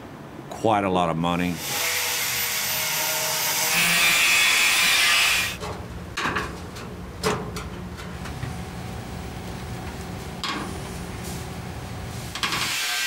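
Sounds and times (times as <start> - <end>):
loud hissing shop tool: 1.5 - 5.6, 12.1 - 13.0.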